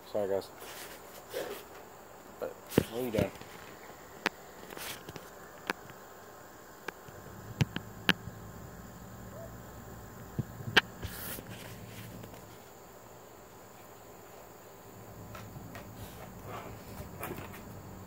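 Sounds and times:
insects droning: 0:00.0 - 0:18.0
brief rustle: 0:04.6 - 0:05.9, 0:10.8 - 0:12.7
sharp clicks and taps: 0:06.8 - 0:08.2.

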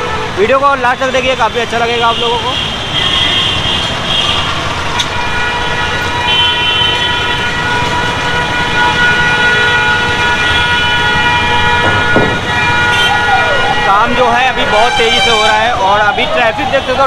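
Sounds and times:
car horns: 0:00.0 - 0:17.0
road traffic engine noise: 0:00.0 - 0:17.0.

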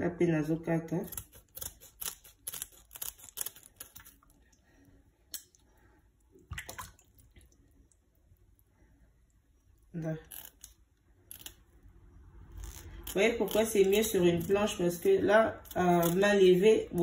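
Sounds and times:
scissors snipping: 0:01.0 - 0:04.2, 0:12.6 - 0:14.7, 0:15.6 - 0:16.5
water splashing: 0:06.3 - 0:08.1.

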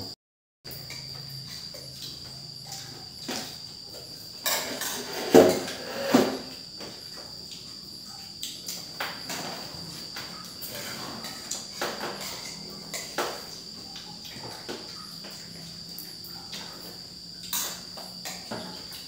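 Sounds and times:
crickets chirring: 0:00.0 - 0:19.0
cutlery clicking on plates: 0:10.6 - 0:13.5, 0:17.4 - 0:19.0.

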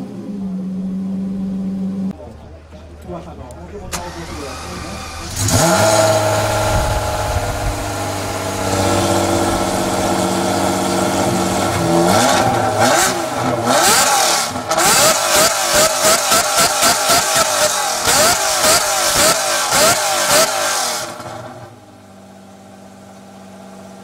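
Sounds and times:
sports car engine revving: 0:03.9 - 0:22.0.

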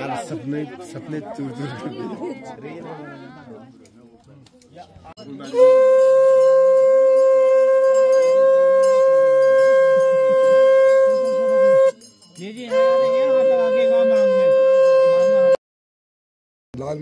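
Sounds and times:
conch shell blown: 0:05.4 - 0:15.6.

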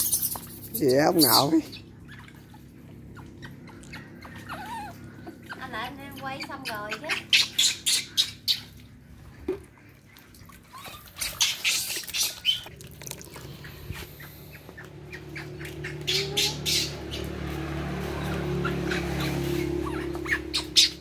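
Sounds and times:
baby macaques screeching: 0:00.0 - 0:08.8, 0:15.1 - 0:21.0
steady low hum: 0:00.0 - 0:11.2, 0:12.6 - 0:21.0.

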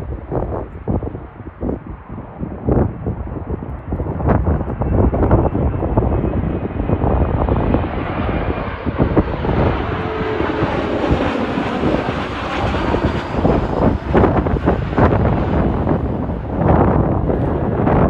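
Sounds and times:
jet engines rumbling and hissing: 0:00.0 - 0:18.0.

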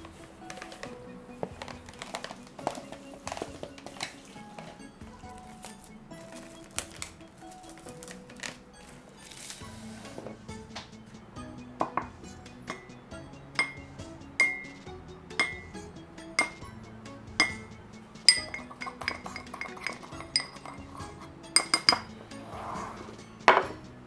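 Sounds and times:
background music: 0:00.0 - 0:24.0
metal spoon clinking on ceramic bowl: 0:13.6 - 0:14.8, 0:15.4 - 0:15.7, 0:16.4 - 0:16.6, 0:17.4 - 0:17.6, 0:18.3 - 0:22.1.

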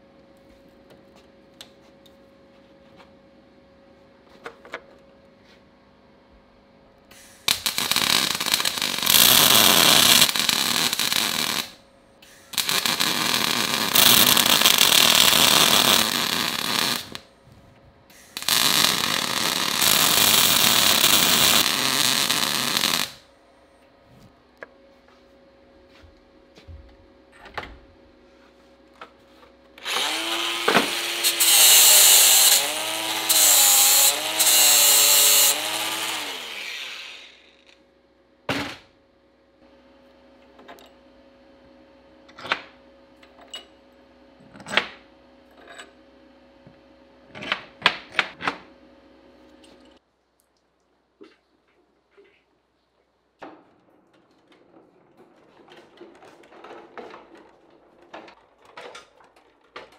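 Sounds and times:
arc welding crackle: 0:07.2 - 0:17.3, 0:18.1 - 0:23.3, 0:29.8 - 0:37.8
angle grinder grinding steel: 0:29.8 - 0:37.8.

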